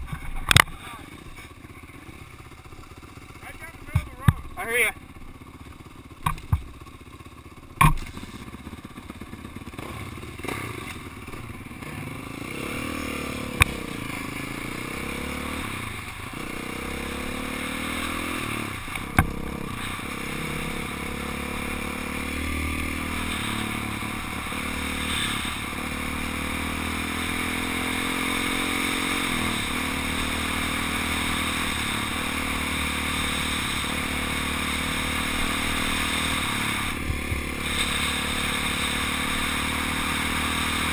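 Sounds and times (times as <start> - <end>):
dirt bike engine accelerating: 0.0 - 40.9
sharp knocks: 6.2 - 6.8, 7.8 - 8.2.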